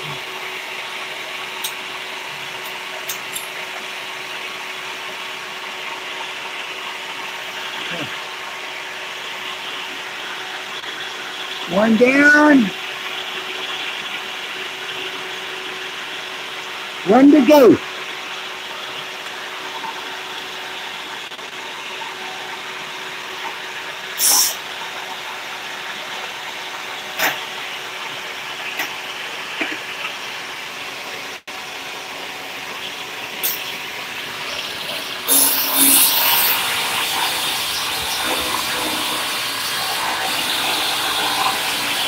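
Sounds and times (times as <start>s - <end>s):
machine hum and hiss: 12.7s - 42.0s
machine whirring: 34.3s - 42.0s.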